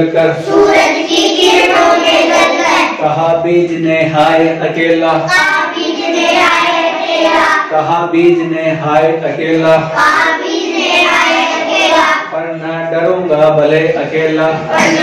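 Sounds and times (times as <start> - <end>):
children singing in unison: 0.4 - 3.0, 5.3 - 7.7, 9.8 - 12.3, 14.7 - 15.0.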